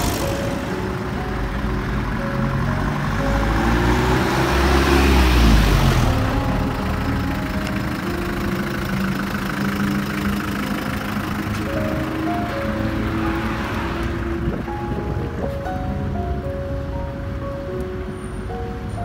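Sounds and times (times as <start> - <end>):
truck engine driving past: 0.0 - 14.9
street traffic noise: 0.0 - 19.0.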